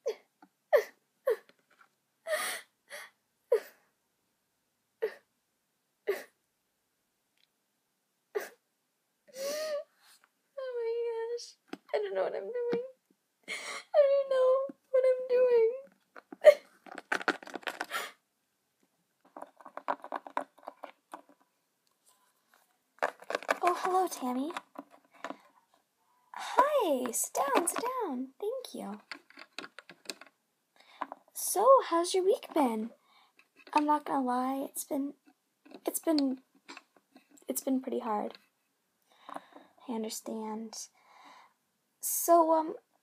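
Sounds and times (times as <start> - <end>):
breathy gasp: 9.3 - 9.9, 41.0 - 41.6
person sobbing: 9.3 - 9.9, 13.5 - 14.6, 16.4 - 16.7
plastic toys tapping on wooden table: 19.3 - 21.4, 29.0 - 30.3.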